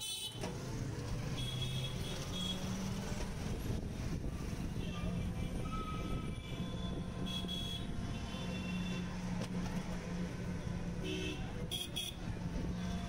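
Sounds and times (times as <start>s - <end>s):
vehicle horns: 0.0s - 0.6s, 1.3s - 2.8s, 4.6s - 9.2s, 11.0s - 12.2s.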